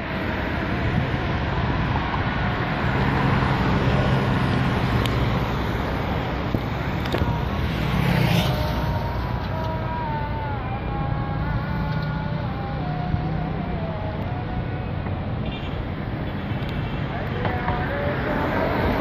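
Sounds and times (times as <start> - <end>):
traffic engine drone: 0.0 - 19.0
vehicle passing close: 0.9 - 10.5.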